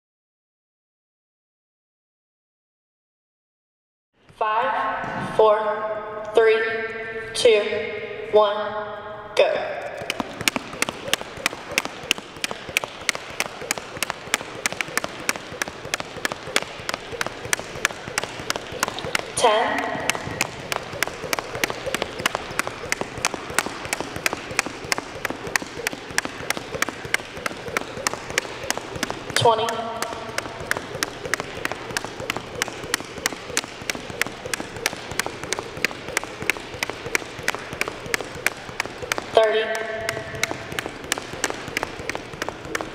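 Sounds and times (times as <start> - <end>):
jump rope slapping wooden floor: 9.8 - 42.9.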